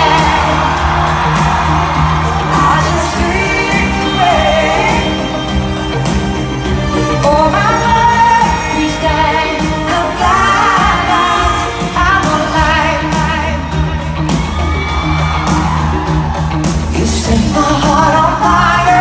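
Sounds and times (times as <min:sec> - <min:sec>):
live band drums and keyboards: 0:00.0 - 0:19.0
woman singing with vibrato: 0:02.1 - 0:06.2, 0:06.8 - 0:13.9, 0:16.9 - 0:19.0.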